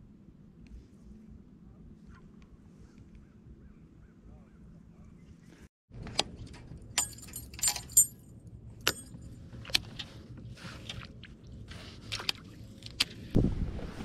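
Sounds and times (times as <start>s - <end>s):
metal hooks clinking: 6.9s - 8.3s.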